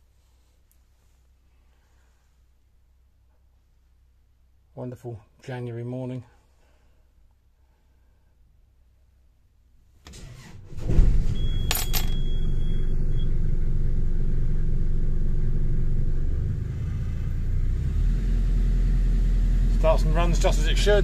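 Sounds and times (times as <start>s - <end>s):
diesel engine idling: 11.4s - 21.0s.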